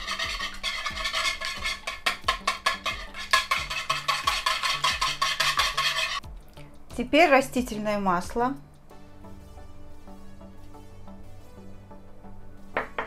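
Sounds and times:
whisk clicking against bowl: 0.0 - 6.2
background music with low notes: 0.0 - 13.0.

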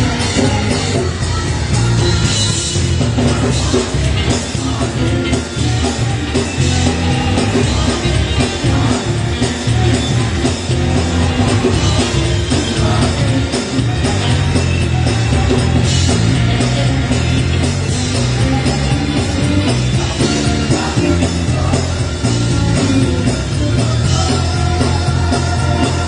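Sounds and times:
choir singing gospel music: 0.0 - 26.0
drums keeping a steady beat: 0.0 - 26.0
heavy bass: 0.0 - 26.0
keyboard: 0.0 - 26.0.

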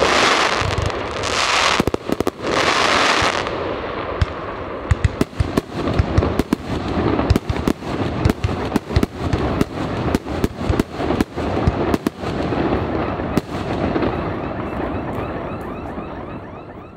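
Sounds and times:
fireworks bangs: 0.0 - 16.5.

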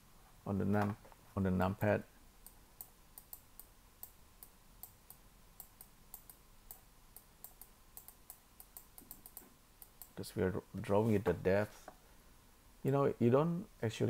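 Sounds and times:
keyboard and mouse clicking: 2.4 - 10.2.

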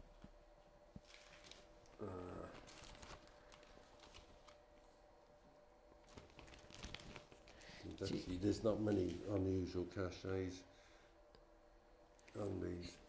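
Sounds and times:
paper rustling: 1.0 - 1.7, 2.6 - 4.9, 6.0 - 9.5.

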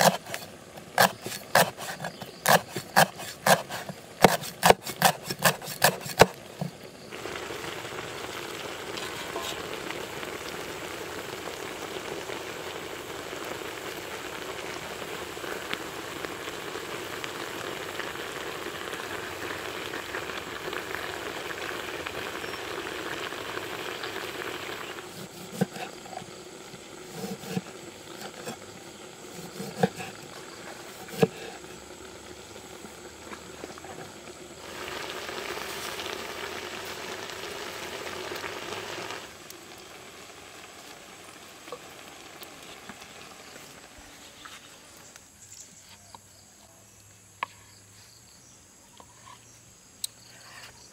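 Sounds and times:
fish frying in a wok: 0.0 - 45.4
cleaver chopping on wooden board: 1.0 - 6.4.

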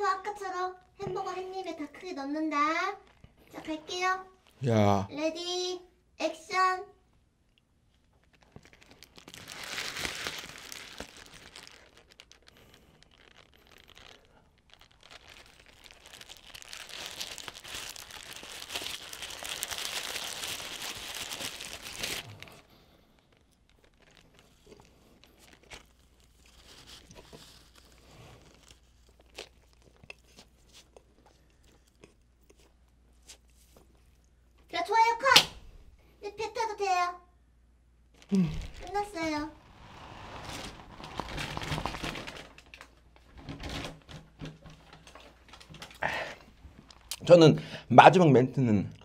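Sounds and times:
paper wrapper crinkling: 7.9 - 32.0, 38.1 - 47.3
chewing: 22.2 - 34.4.

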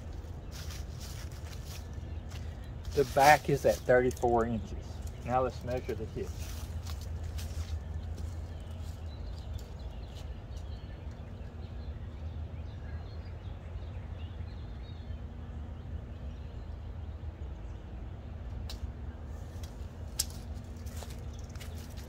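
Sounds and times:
small birds chirping: 0.0 - 22.0
steady low rumble: 0.0 - 22.0.

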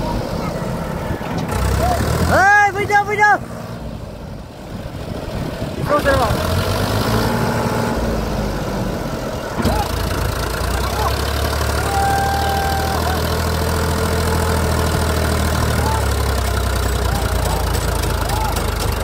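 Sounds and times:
tractor diesel engine under load: 0.0 - 19.0.

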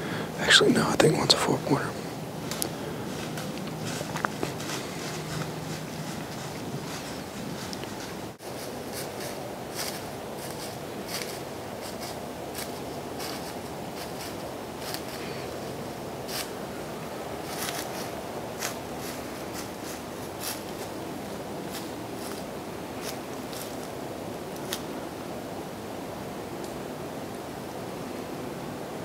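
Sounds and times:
steady background hiss: 0.0 - 29.0
footsteps crunching dry leaves: 2.4 - 16.7, 17.4 - 24.9.

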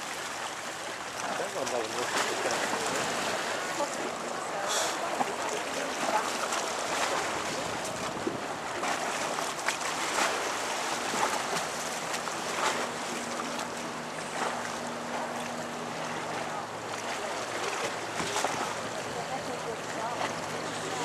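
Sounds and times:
low engine hum: 0.0 - 21.0
water lapping: 0.0 - 21.0
wind: 0.0 - 21.0.

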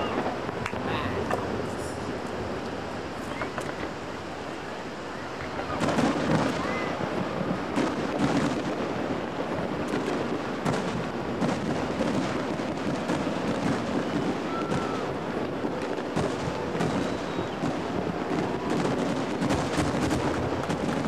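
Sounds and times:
fireworks booming and crackling: 0.0 - 21.0.

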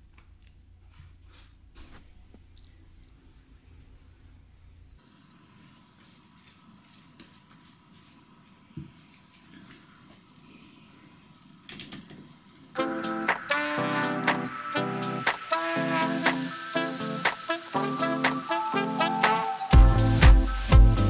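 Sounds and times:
faint sizzling in a pan: 5.0 - 15.6.

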